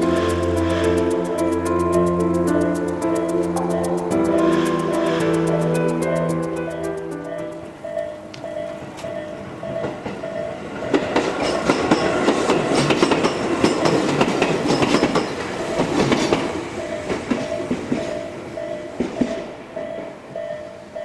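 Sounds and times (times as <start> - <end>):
train passing: 0.0 - 21.0
train wheels clacking over rail joints: 8.3 - 20.1.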